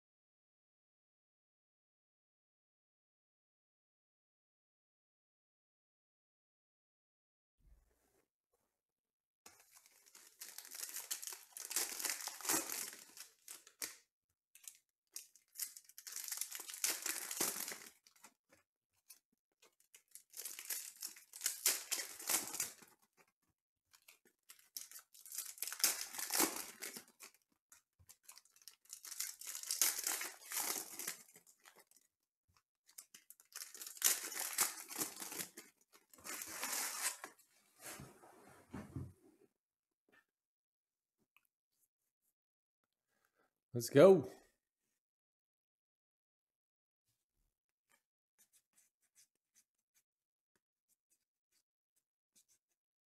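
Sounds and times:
foil wrappers tearing and crinkling: 9.7s - 13.9s, 14.6s - 18.2s, 20.0s - 23.0s, 24.5s - 27.4s, 28.2s - 32.0s, 33.0s - 37.3s.

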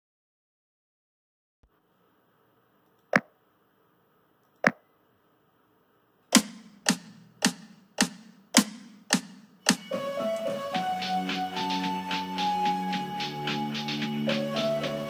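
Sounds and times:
sharp clicks: 6.3s - 9.8s
metronome clicks: 6.3s - 9.9s.

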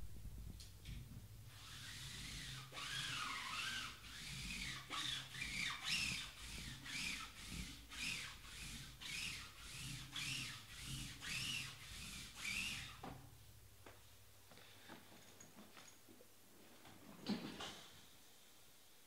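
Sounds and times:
cardboard boxes rubbing squeakily: 1.6s - 13.0s.

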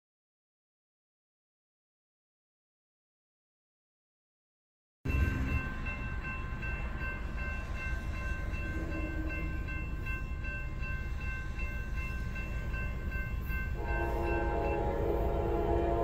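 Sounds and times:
crossing warning bell dinging: 5.1s - 16.0s.

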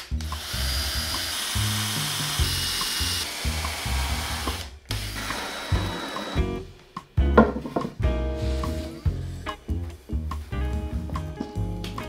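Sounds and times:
cordless drill whining into wood: 0.0s - 6.6s
background music with bass line: 5.8s - 12.0s.

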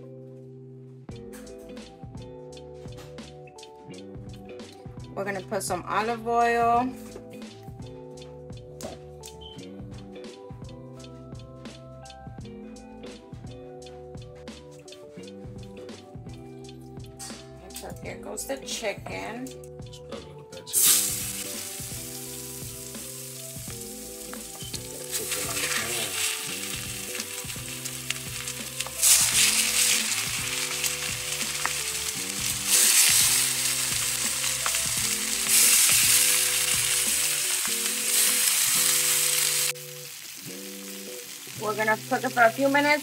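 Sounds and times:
chicken sizzling in a frying pan: 20.7s - 43.0s.

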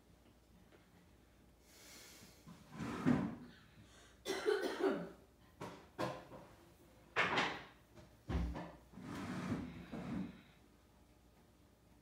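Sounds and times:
person coughing: 4.2s - 5.2s.

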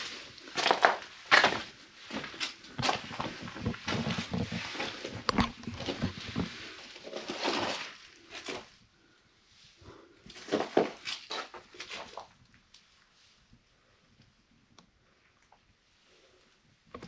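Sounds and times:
footsteps crunching on rubble: 0.0s - 8.7s.

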